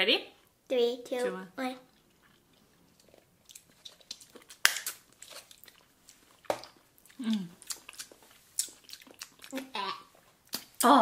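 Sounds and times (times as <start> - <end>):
wet lip smacks: 10.5 - 10.8.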